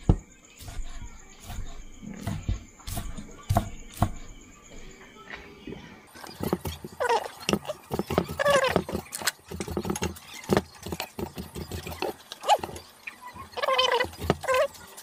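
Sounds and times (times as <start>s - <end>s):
knife chopping on wooden block: 1.5s - 4.2s.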